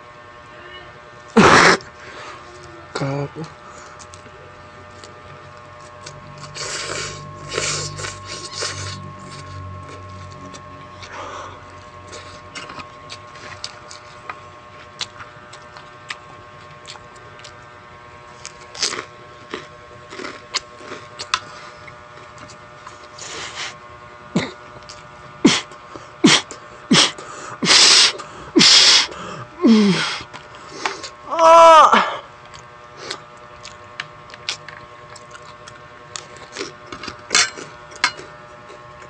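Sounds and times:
faint steady hum: 0.0 - 39.0
lettuce being chewed: 3.8 - 23.8, 24.4 - 27.2, 32.4 - 39.0.

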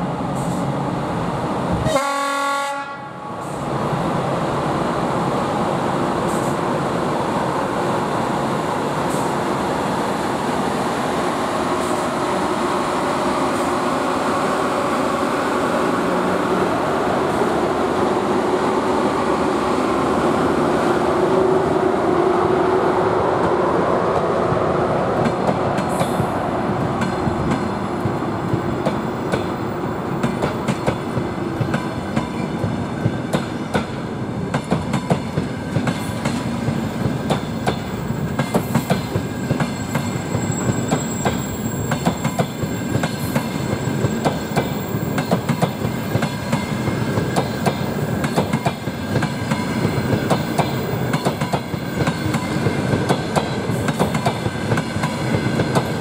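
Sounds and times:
electric locomotive rumbling past: 3.0 - 56.0
train wheels clacking on rail joints: 30.2 - 56.0.

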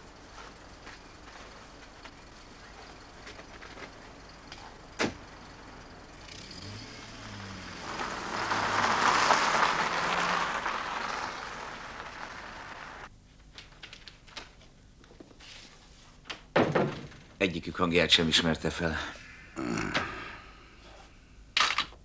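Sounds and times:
car engine starting and driving off: 5.0 - 13.1.

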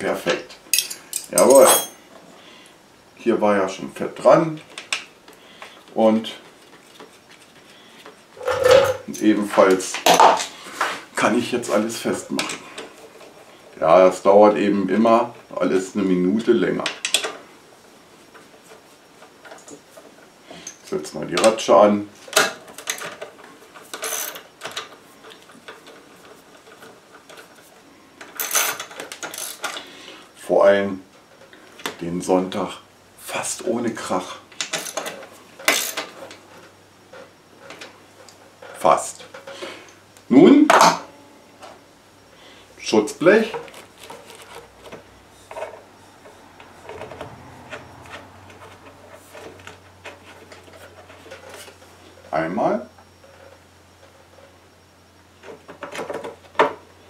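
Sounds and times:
hands rubbing parts: 43.4 - 52.4.

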